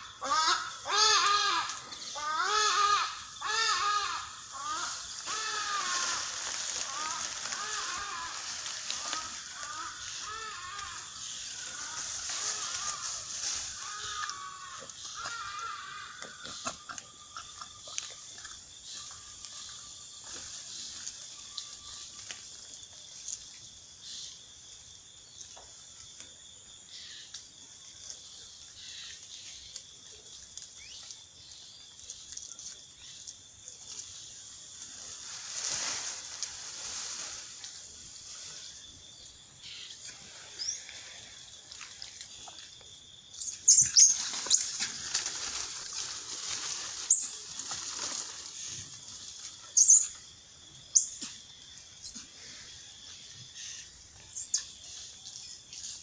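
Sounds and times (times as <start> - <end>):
high insect drone: 0.0 - 56.0
rustling in trees: 0.0 - 56.0
bird chirps and calls: 49.8 - 50.2, 50.9 - 51.4.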